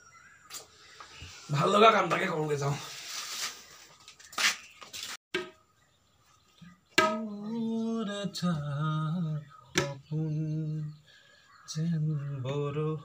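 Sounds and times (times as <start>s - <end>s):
knocks: 5.4s - 5.6s, 7.0s - 7.3s
tabla strokes: 7.0s - 7.3s.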